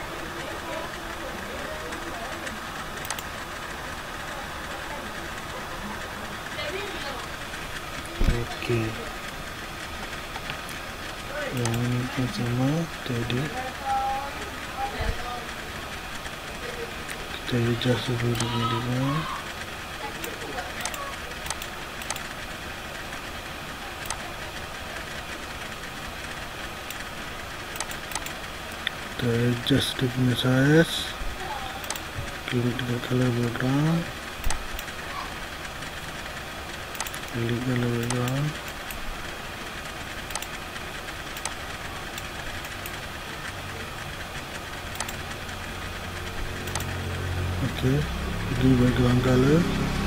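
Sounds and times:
low background hum and hiss: 0:00.0 - 0:50.0
computer mouse clicking: 0:03.0 - 0:03.4, 0:11.5 - 0:12.5, 0:20.2 - 0:22.4, 0:24.0 - 0:24.3, 0:27.7 - 0:29.0, 0:31.8 - 0:33.4, 0:36.9 - 0:39.0, 0:40.2 - 0:40.6, 0:41.3 - 0:45.3, 0:46.5 - 0:47.0.

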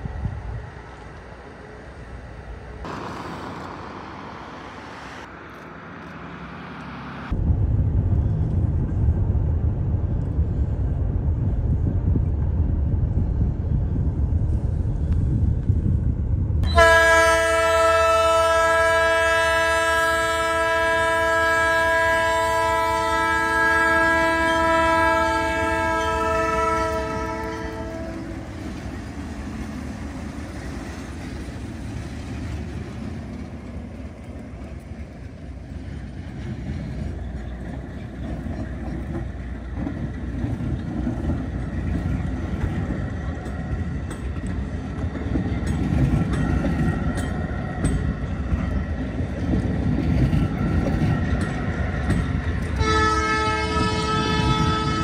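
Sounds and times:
diesel locomotive engines rumbling: 0:00.0 - 0:55.0
train air horn blast: 0:16.6 - 0:28.4, 0:52.8 - 0:55.0.

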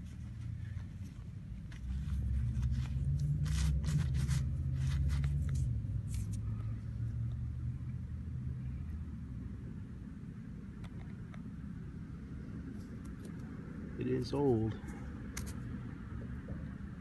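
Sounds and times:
toothbrush scrubbing a coin: 0:03.4 - 0:05.4.

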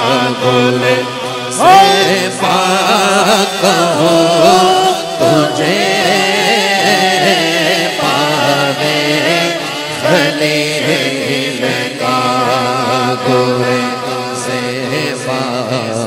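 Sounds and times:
low drone: 0:00.0 - 0:16.0
man singing wordless melody: 0:00.0 - 0:16.0.

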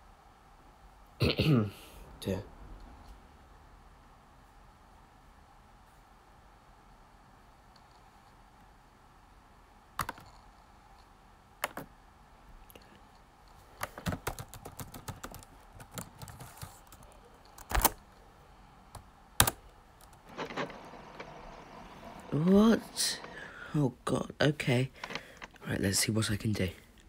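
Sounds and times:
computer keyboard typing: 0:10.0 - 0:10.4, 0:11.6 - 0:11.9, 0:13.8 - 0:18.0, 0:18.9 - 0:23.5.

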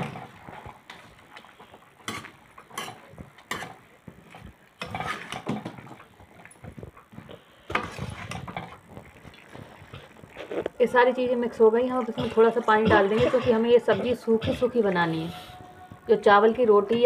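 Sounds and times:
ladle scraping through vegetables: 0:07.7 - 0:10.8.

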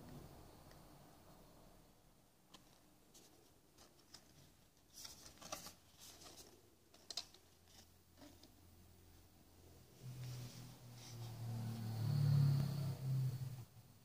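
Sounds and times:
paper card rustling and ticking: 0:02.5 - 0:08.5.

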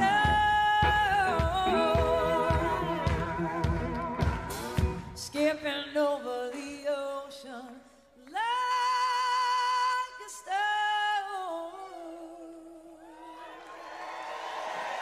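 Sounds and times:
woman singing with vibrato: 0:00.0 - 0:13.5.

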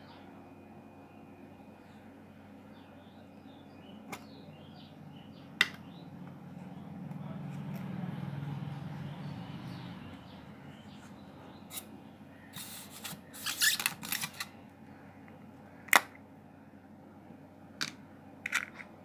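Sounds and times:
magnetic balls scraping and rattling: 0:12.6 - 0:14.5.

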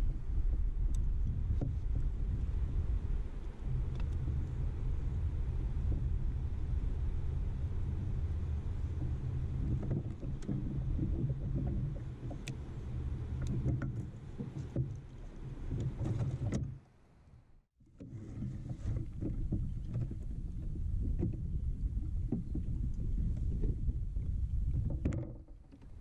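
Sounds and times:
wind and water rumble: 0:00.0 - 0:26.0.

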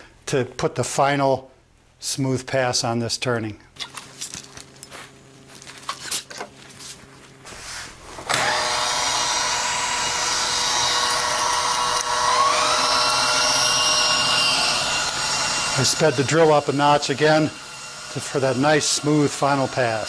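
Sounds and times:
router motor whine: 0:08.2 - 0:20.0
cordless drill running: 0:08.3 - 0:20.0.

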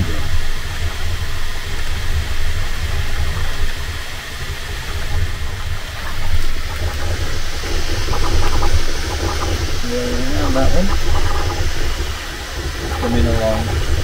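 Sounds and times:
heavy low hum: 0:00.0 - 0:14.0
printer fans whirring: 0:04.9 - 0:14.0
print head buzzing: 0:05.9 - 0:14.0.

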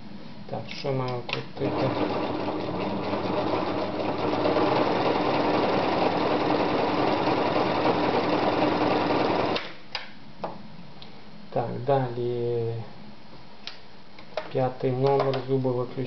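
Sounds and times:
sewing machine stitching: 0:01.6 - 0:09.6.

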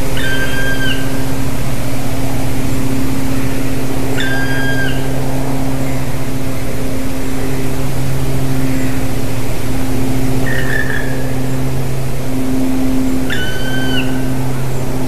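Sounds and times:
loud steady low hum: 0:00.0 - 0:15.0
woodpecker calls: 0:00.1 - 0:01.3, 0:04.2 - 0:05.1, 0:13.2 - 0:14.3.

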